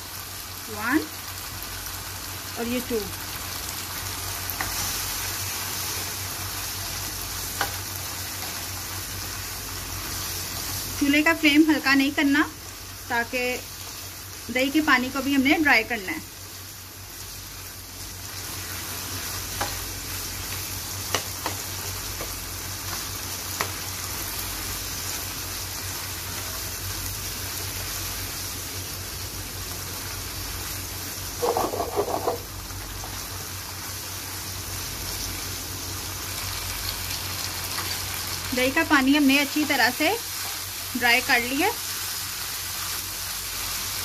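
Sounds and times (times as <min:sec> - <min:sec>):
meat sizzling in a pan: 0:00.0 - 0:44.0
spatula tapping pan: 0:21.1 - 0:22.4, 0:31.4 - 0:32.4
metal spatula scraping pan: 0:31.4 - 0:32.4.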